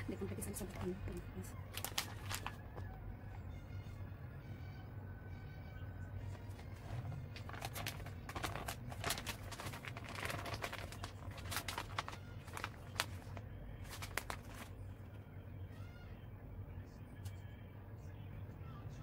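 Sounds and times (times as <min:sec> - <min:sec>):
low steady hum: 0:00.0 - 0:19.0
plastic bag crinkling: 0:01.6 - 0:02.6, 0:06.4 - 0:14.8.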